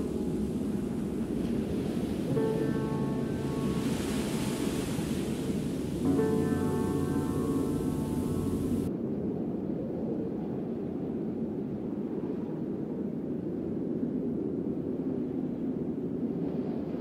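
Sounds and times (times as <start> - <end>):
music: 0.0 - 8.9
low rumbling noise: 0.0 - 11.2.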